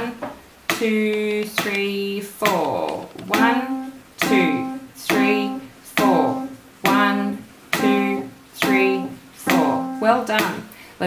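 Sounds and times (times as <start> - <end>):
piano note ringing: 3.2 - 7.0, 7.8 - 10.3.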